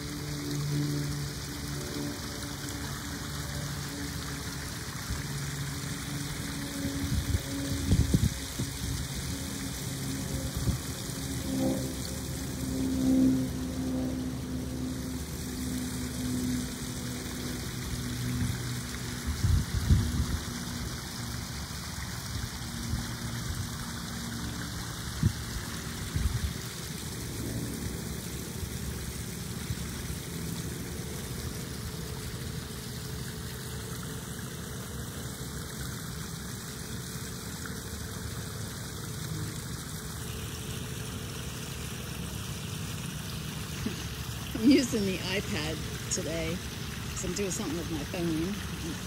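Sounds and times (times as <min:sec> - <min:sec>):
water trickling into pond: 0:00.0 - 0:49.0.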